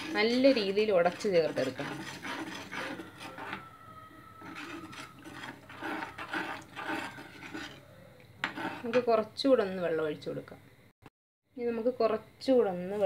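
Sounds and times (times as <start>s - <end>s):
steel ladle scraping clay pot: 0.0s - 9.2s.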